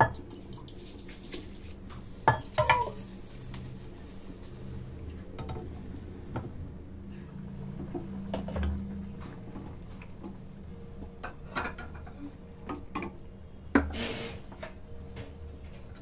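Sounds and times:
steady low hum: 3.7 - 16.0
spatula scraping metal pan: 13.9 - 14.6.

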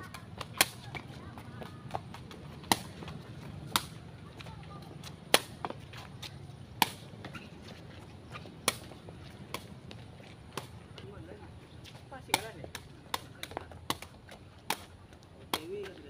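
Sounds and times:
ball kicked smacks: 2.6 - 4.0.

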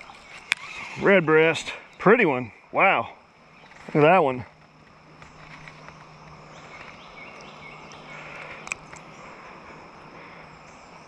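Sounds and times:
insects droning: 0.0 - 11.0.

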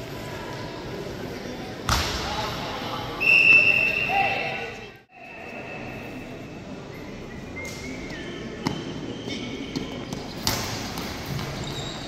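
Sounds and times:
hum of large hall: 0.0 - 12.0.

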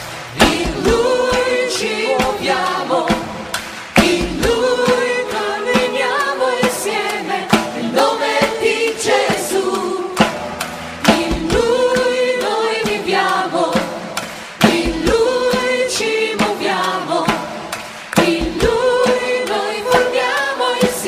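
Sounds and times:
choir singing: 0.0 - 21.0
sharp percussion hits: 0.0 - 21.0.

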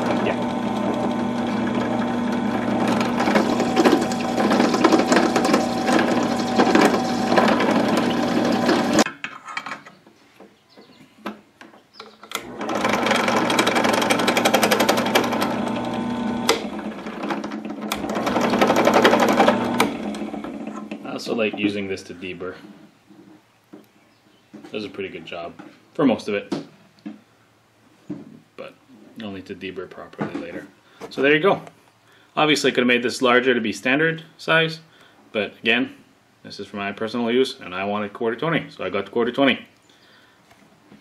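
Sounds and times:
drill press motor hum: 0.0 - 9.1, 12.3 - 21.0.

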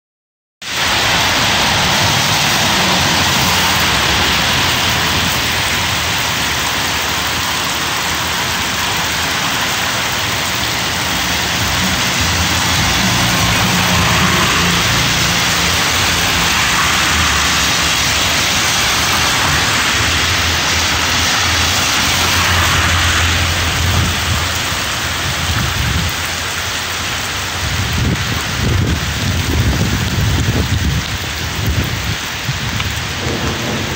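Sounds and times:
cars driving on wet road: 0.6 - 33.9
heavy rain on pavement: 0.6 - 33.9.

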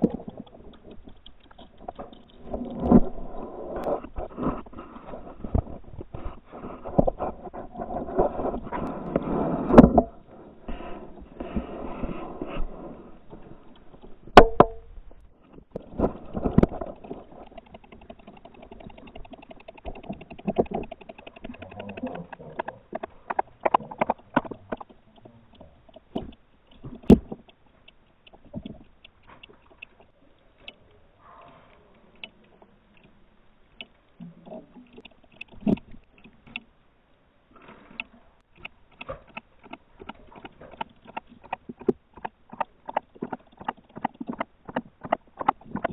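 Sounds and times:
thumps: 13.3 - 25.0
water splashing: 15.8 - 27.6
fast ticking: 16.8 - 25.0.

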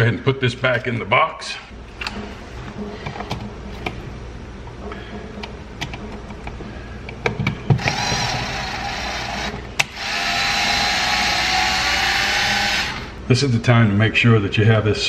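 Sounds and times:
cordless drill motor whining: 7.8 - 13.2.

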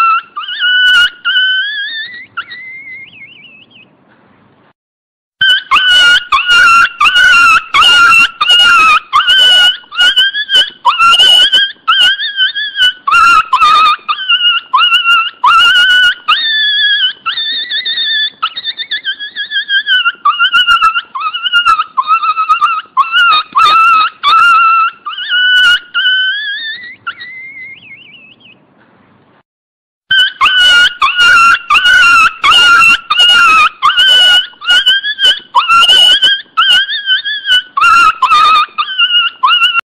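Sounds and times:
puppy yelping: 0.0 - 3.8, 5.4 - 28.6, 30.1 - 39.9
puppy whining: 0.0 - 3.9, 5.4 - 28.6, 30.1 - 39.9.

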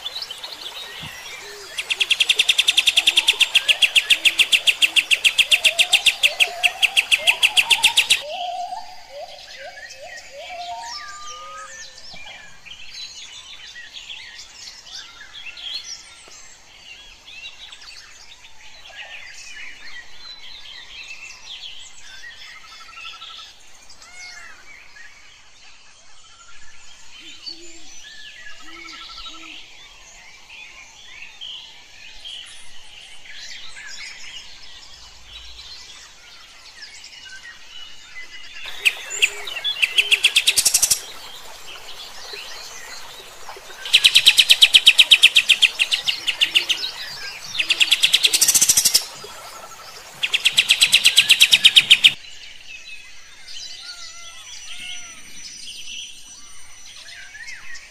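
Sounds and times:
bird singing in chirps and whistles: 0.0 - 12.3, 38.6 - 52.2.

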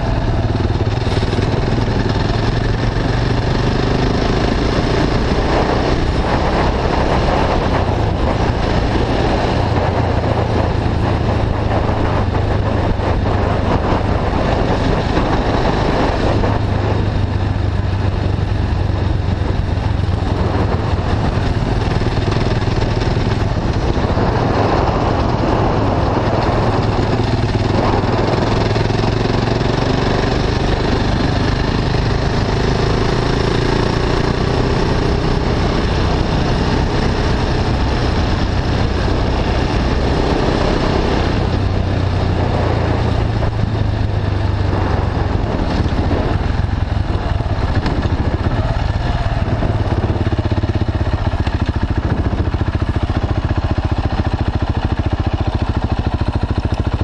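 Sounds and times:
motorcycle engine cruising: 0.0 - 57.0
wind noise on microphone: 0.0 - 57.0.

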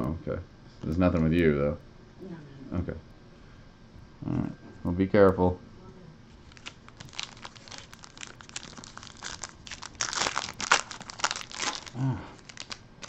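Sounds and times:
foil wrapper crinkling and tearing: 6.4 - 13.0.

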